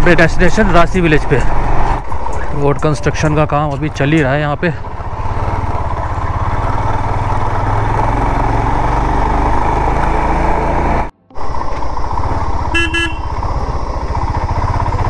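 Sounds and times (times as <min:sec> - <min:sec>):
motorcycle engine running: 0:00.0 - 0:15.0
short horn toot: 0:12.7 - 0:13.4.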